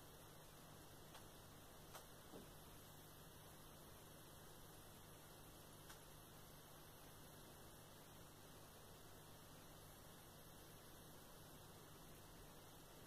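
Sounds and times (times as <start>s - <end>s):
faint low hum and hiss: 0.0s - 13.0s
faint click: 5.8s - 6.1s.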